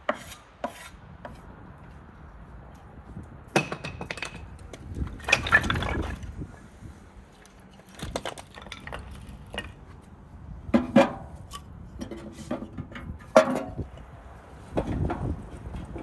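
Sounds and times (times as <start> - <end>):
firewood clattering: 3.5 - 6.5, 7.3 - 14.0.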